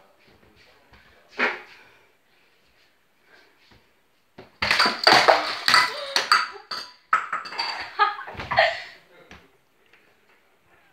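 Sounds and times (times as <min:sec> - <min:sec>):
lamp crashing on tiled floor: 0:04.6 - 0:07.9.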